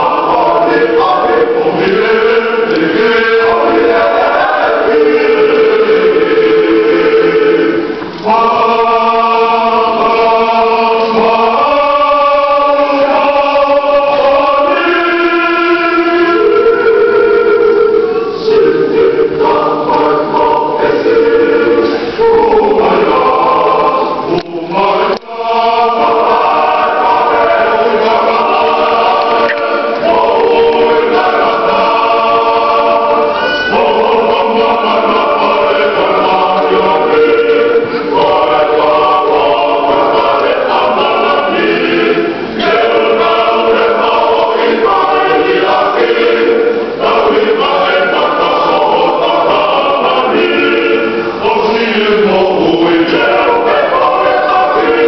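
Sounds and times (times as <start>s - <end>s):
choir singing a hymn: 0.0s - 55.0s.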